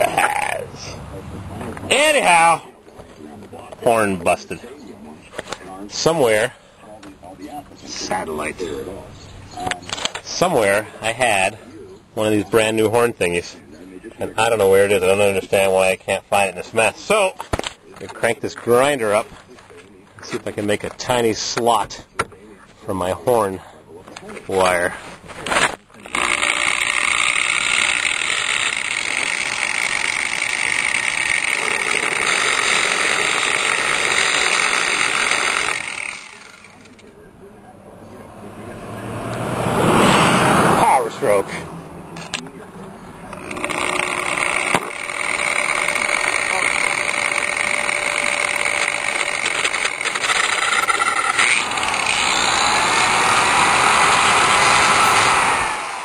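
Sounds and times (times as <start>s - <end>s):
grinder cutting metal: 25.5s - 37.0s, 43.3s - 56.0s.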